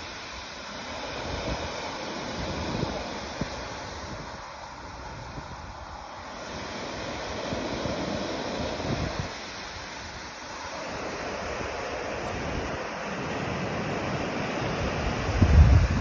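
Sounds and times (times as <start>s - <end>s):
ocean surf breaking: 0.0s - 16.0s
wind buffeting microphone: 2.3s - 5.9s, 7.1s - 9.4s, 14.1s - 16.0s.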